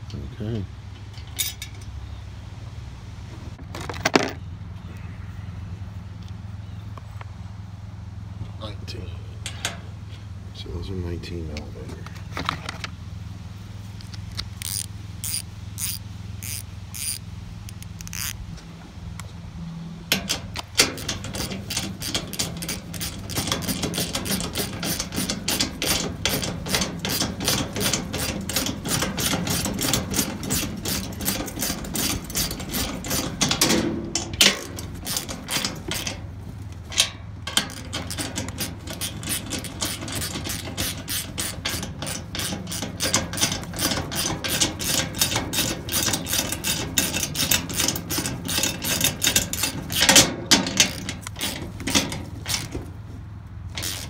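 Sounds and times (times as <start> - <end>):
ratchet wrench clicking: 14.0 - 18.4, 20.1 - 36.2, 36.9 - 52.8, 53.7 - 54.0.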